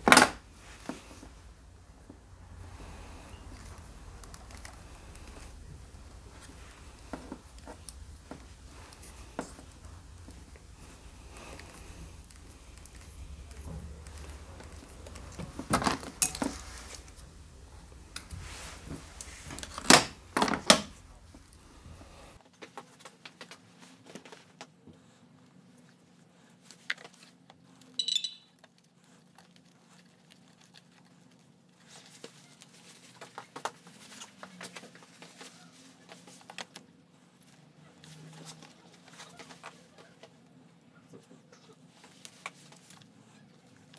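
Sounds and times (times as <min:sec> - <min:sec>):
hands handling wiring and connectors: 0:00.0 - 0:22.7.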